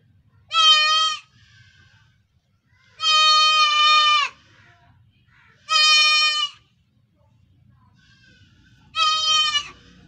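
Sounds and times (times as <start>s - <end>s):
goat kid bleating: 0.4s - 1.8s, 2.8s - 4.5s, 5.6s - 6.7s, 8.9s - 10.0s.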